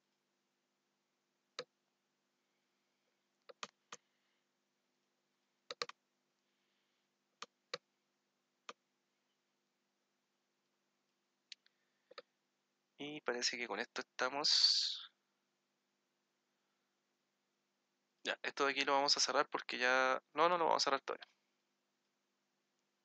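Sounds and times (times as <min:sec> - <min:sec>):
faint steady hum: 0:00.0 - 0:20.5
computer mouse clicking: 0:03.5 - 0:04.0, 0:05.7 - 0:06.0, 0:12.1 - 0:12.3.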